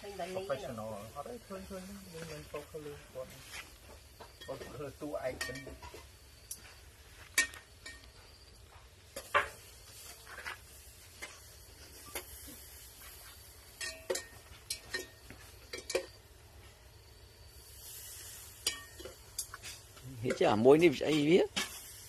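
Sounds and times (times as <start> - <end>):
dishes and utensils clinking: 4.3 - 6.0, 13.7 - 16.2.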